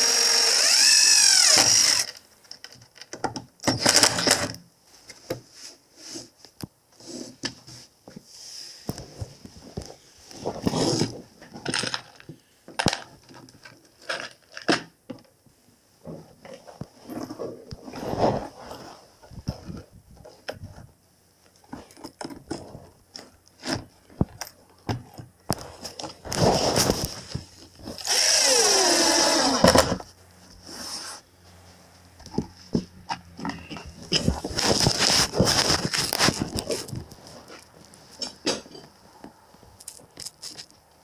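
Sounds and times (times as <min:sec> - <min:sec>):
power drill boring into metal: 0:00.0 - 0:02.2, 0:28.0 - 0:30.0
knocks and clatter of handling: 0:08.9 - 0:15.3, 0:21.5 - 0:27.9, 0:32.2 - 0:40.8.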